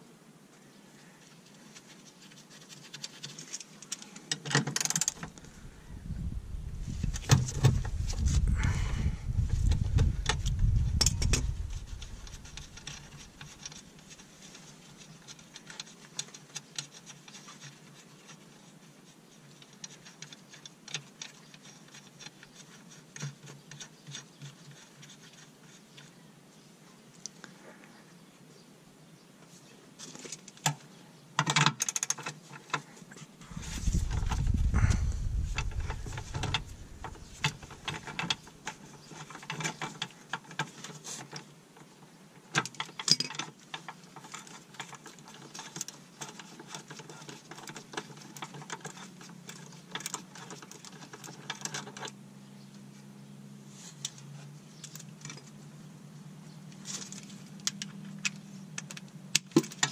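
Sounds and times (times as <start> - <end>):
faint low hum: 5.1 - 22.8, 32.9 - 42.3
low rumble: 5.5 - 12.4, 33.5 - 37.9.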